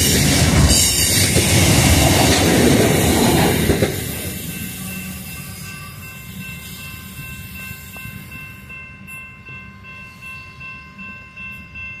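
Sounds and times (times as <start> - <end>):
freight train rumbling: 0.0 - 12.0
high ringing of several pitches: 4.3 - 12.0.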